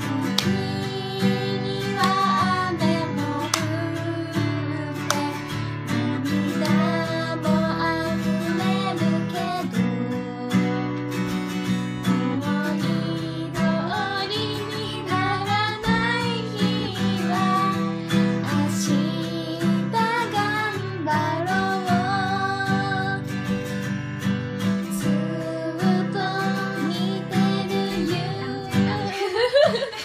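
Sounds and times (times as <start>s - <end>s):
woman singing: 0.0s - 11.2s, 12.0s - 23.4s, 24.8s - 29.9s
acoustic guitar strumming: 0.0s - 30.0s.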